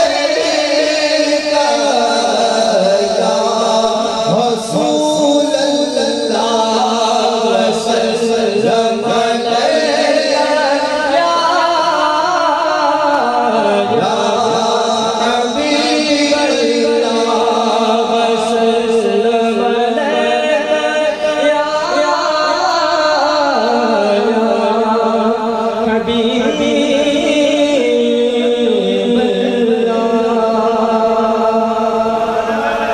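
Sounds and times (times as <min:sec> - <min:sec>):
person chanting a devotional song: 0:00.0 - 0:32.9.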